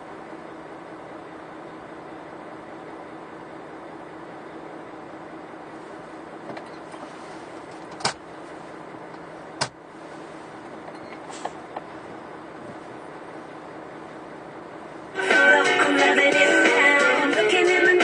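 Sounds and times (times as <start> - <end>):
car deck hum: 5.8 - 13.4.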